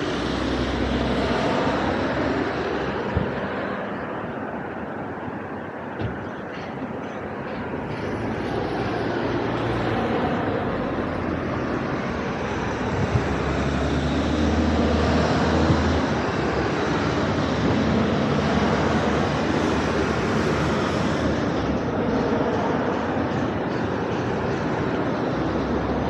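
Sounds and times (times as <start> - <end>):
vehicle passing rumble: 0.0 - 26.0.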